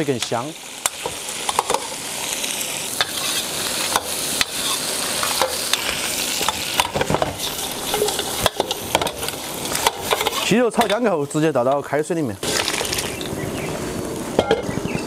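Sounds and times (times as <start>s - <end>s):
chicken sizzling in a wok: 0.0s - 15.0s
steel ladle scraping a pan: 3.0s - 11.0s.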